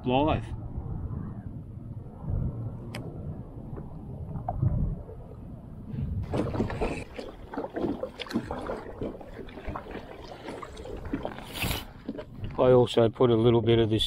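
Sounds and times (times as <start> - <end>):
waves lapping against hull: 3.5 - 13.4.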